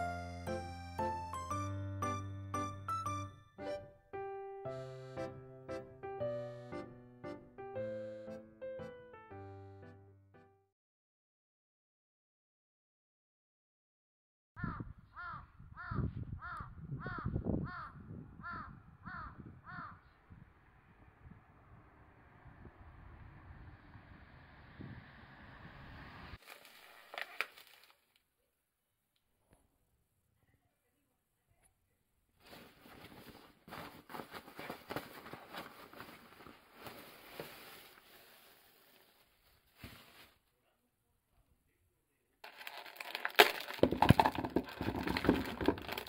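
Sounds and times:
crow cawing: 14.6s - 20.2s
plastic bags crinkling: 26.4s - 28.1s, 42.4s - 46.0s.

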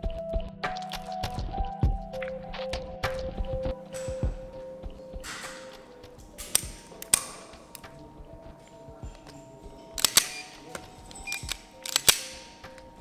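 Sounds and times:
soft background music: 0.0s - 13.0s
pistol hammer clicks: 5.2s - 7.9s, 10.0s - 12.9s.

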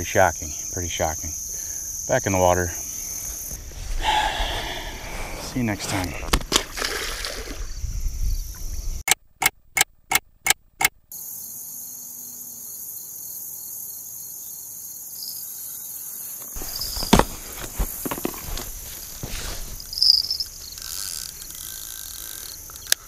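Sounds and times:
insects trilling: 0.0s - 9.0s, 11.1s - 23.0s
sharp clicks: 20.0s - 23.0s.

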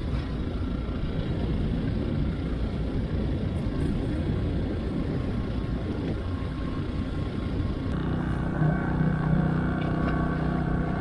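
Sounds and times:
portable generator running: 7.9s - 11.0s.

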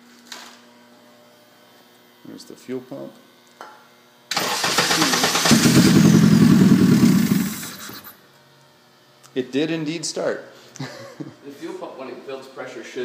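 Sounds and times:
engine starter cranking: 4.3s - 8.1s.

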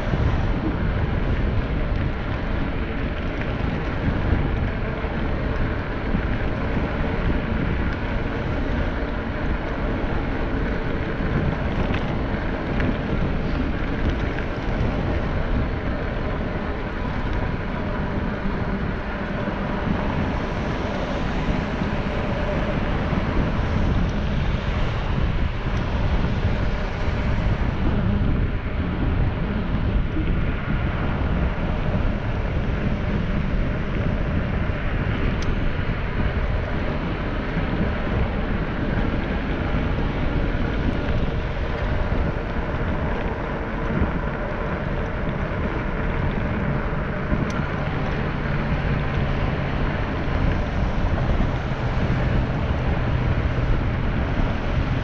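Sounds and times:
tyres rolling on asphalt: 0.0s - 55.0s
wind buffeting microphone: 0.0s - 55.0s.

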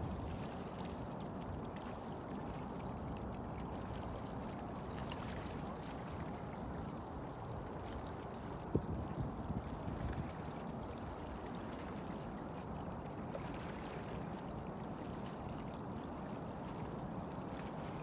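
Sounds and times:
wind buffeting microphone: 8.6s - 10.5s.

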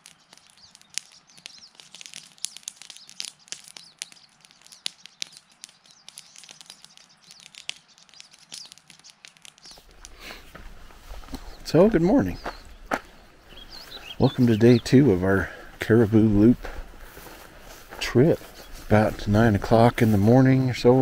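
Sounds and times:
sharp ticks: 0.0s - 10.6s
small birds chirping: 0.0s - 21.0s.

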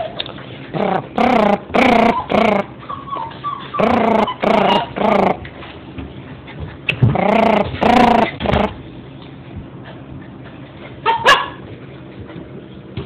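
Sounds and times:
dog whimpering: 0.8s - 5.4s, 7.1s - 8.8s
dog barking: 11.0s - 11.6s.

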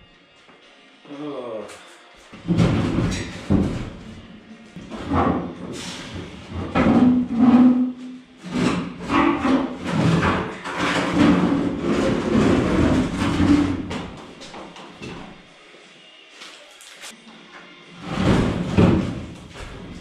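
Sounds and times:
metal knocks and bangs: 2.4s - 4.2s, 4.8s - 14.2s, 18.0s - 20.0s
sheet metal scraping and grinding: 4.9s - 13.9s.

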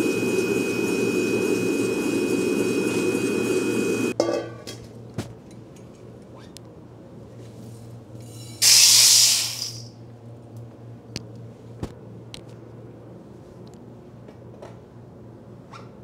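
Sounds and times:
air blower humming: 0.0s - 4.2s.

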